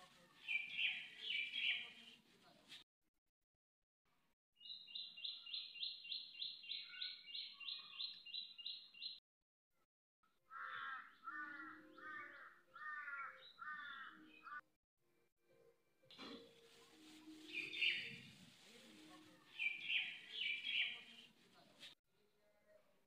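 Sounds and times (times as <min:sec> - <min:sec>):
crow cawing: 0:10.5 - 0:14.2.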